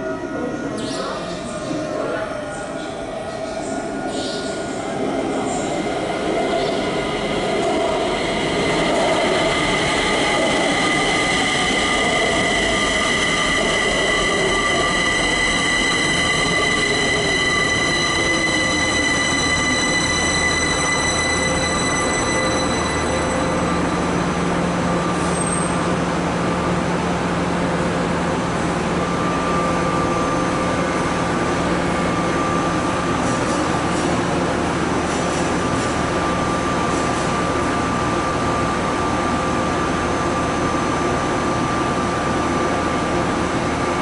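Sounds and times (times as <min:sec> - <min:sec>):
high steady whining tones: 0:02.9 - 0:35.0
electric train motor whine: 0:04.5 - 0:33.2.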